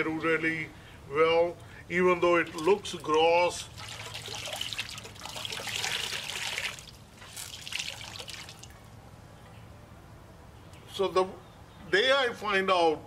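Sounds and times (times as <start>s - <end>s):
water trickling into a steel bowl: 3.6s - 8.9s.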